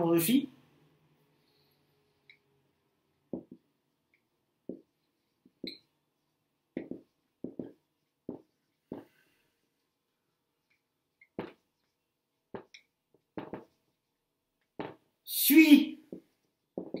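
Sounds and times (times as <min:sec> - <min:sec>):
marker tapping on whiteboard: 0:03.3 - 0:03.7, 0:04.6 - 0:05.9, 0:06.7 - 0:09.2, 0:11.2 - 0:11.9, 0:12.5 - 0:13.9, 0:14.6 - 0:15.1, 0:16.1 - 0:17.0.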